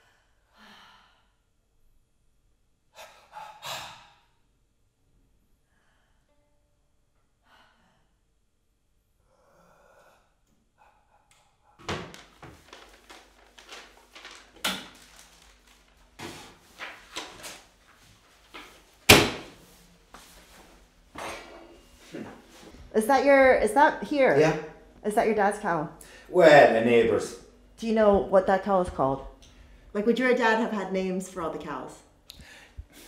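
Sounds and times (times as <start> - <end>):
pots knocking and banging: 21.1 - 21.8.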